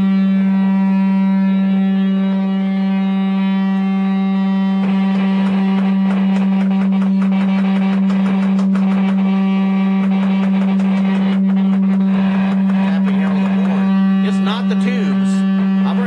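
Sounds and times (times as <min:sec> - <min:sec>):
low test tone through guitar amp: 0:00.0 - 0:16.0
crackling clicks and buzz: 0:04.7 - 0:16.0.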